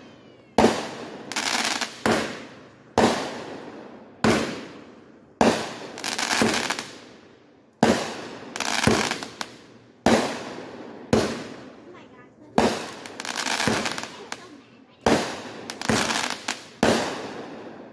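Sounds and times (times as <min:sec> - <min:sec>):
fireworks bangs with echo: 0:00.0 - 0:07.2, 0:07.8 - 0:17.9
fireworks crackling: 0:00.0 - 0:17.9.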